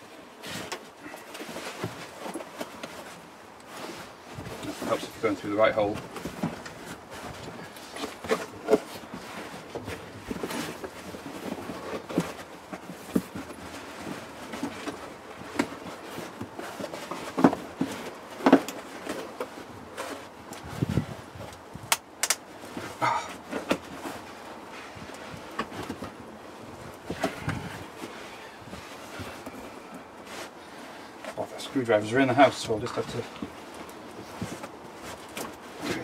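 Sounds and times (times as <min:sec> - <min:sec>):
carpet rustling and scraping: 0:00.0 - 0:36.0
sharp clicks: 0:21.9 - 0:22.4.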